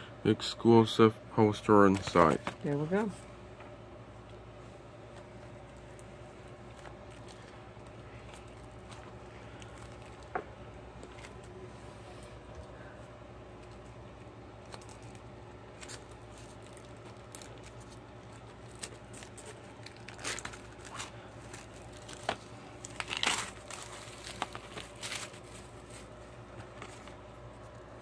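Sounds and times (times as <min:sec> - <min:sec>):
shrink wrap crinkling and tearing: 0:05.6 - 0:11.7, 0:13.6 - 0:28.0.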